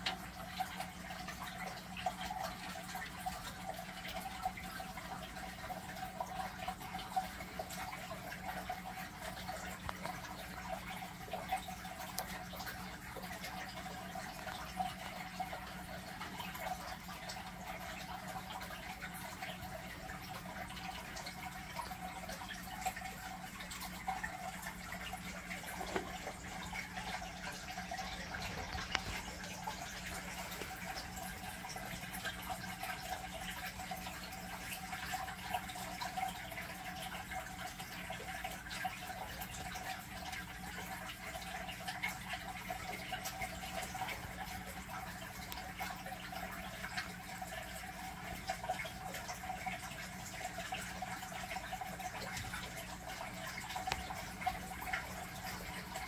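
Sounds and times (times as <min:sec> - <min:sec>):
small ticks: 0:00.0 - 0:49.4, 0:50.7 - 0:56.0
constant low hum: 0:00.0 - 0:56.0
water trickling and dripping: 0:00.0 - 0:56.0.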